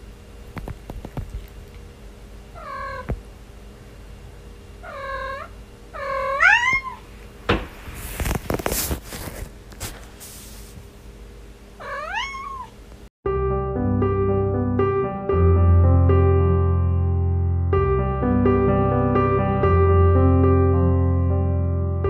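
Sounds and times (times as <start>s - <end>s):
young cat meowing: 2.6s - 3.1s, 4.8s - 7.0s, 11.8s - 12.8s
scuffling noise: 7.6s - 10.9s.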